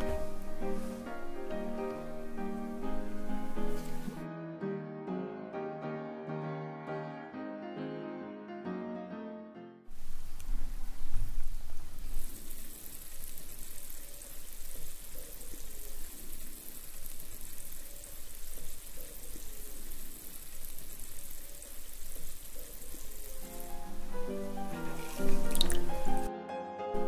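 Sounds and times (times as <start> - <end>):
gas bubbles fizzing in water: 10.6 - 26.3.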